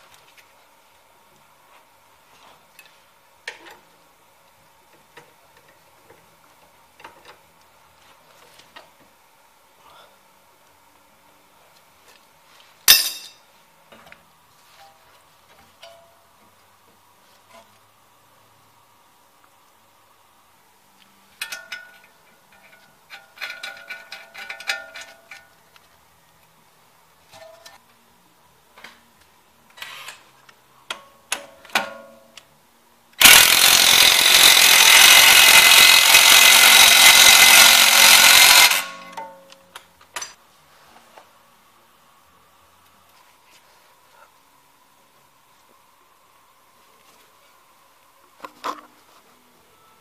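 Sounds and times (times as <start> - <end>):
metal tools clinking: 12.9 - 13.4.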